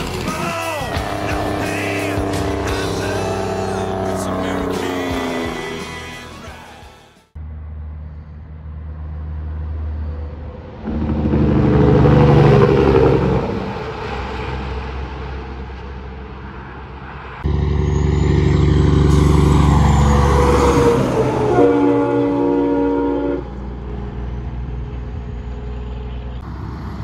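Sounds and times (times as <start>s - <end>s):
diesel trucks accelerating past: 0.0s - 6.7s, 7.4s - 27.0s
truck engine starting: 0.0s - 6.7s, 9.0s - 15.9s, 17.4s - 22.7s.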